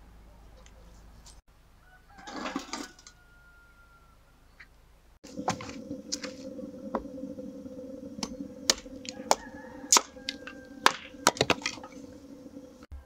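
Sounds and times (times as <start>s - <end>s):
steady low hum: 5.2s - 12.9s.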